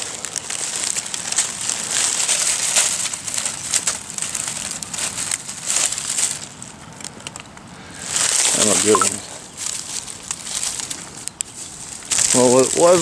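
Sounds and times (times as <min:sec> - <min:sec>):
dry leaves crunching underfoot: 0:00.0 - 0:07.3, 0:08.0 - 0:13.0.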